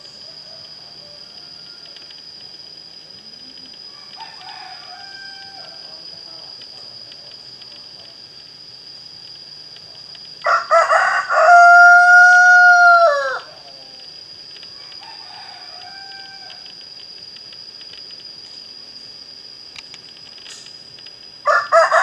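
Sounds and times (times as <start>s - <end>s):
faint rooster call: 0.2s - 2.1s, 3.9s - 5.8s, 10.4s - 13.7s, 14.8s - 16.7s, 21.4s - 22.0s
rooster crowing: 0.2s - 2.2s, 3.9s - 6.0s, 10.4s - 13.7s, 14.8s - 16.7s, 21.4s - 22.0s.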